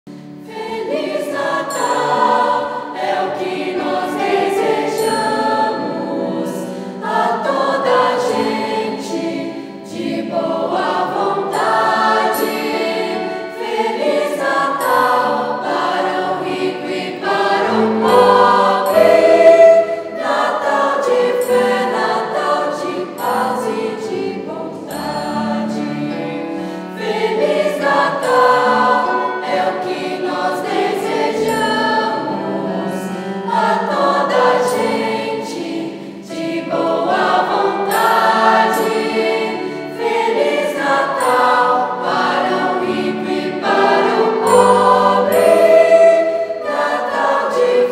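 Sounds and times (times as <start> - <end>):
youth choir singing: 0.4 - 47.9.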